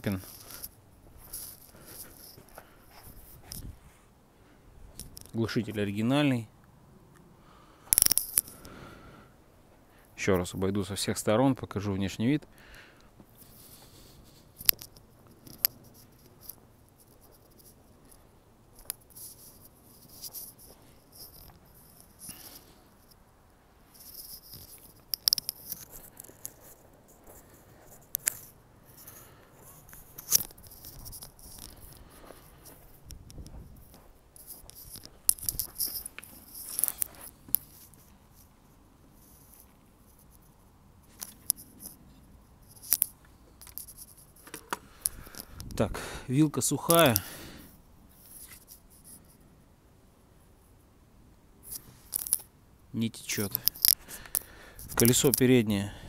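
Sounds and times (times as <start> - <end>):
footsteps crunching on snow: 0.1 - 4.0.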